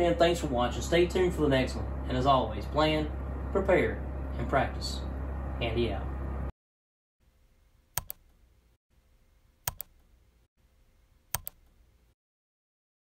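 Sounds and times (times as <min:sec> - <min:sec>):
computer mouse clicks: 0:08.0 - 0:08.4, 0:09.6 - 0:10.1, 0:11.3 - 0:11.8.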